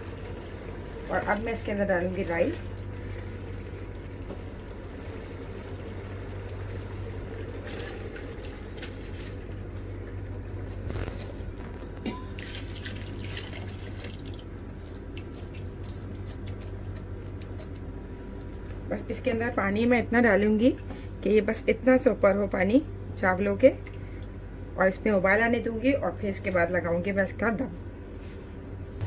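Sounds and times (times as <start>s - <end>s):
steady background hum: 0.0s - 29.0s
water pouring: 7.6s - 9.5s, 12.4s - 16.0s
liquid bubbling: 10.8s - 17.8s.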